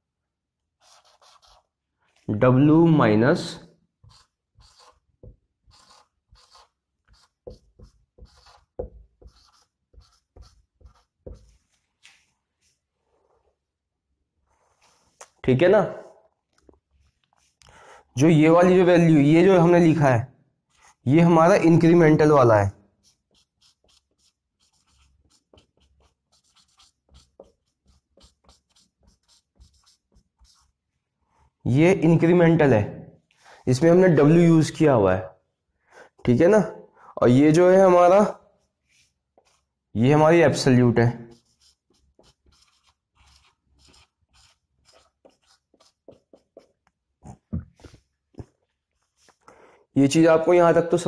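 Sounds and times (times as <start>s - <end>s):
marker pen writing on whiteboard: 0.8s - 1.8s, 4.0s - 13.4s, 14.5s - 15.4s, 16.6s - 17.7s, 20.7s - 21.9s, 22.9s - 31.6s, 38.1s - 49.5s.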